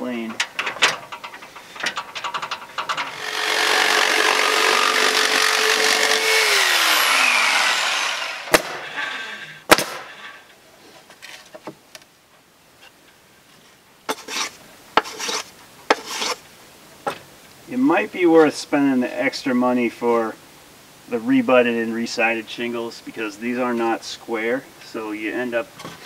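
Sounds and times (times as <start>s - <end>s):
jigsaw cutting wood: 3.1s - 9.1s
short scraping sounds: 14.1s - 16.4s.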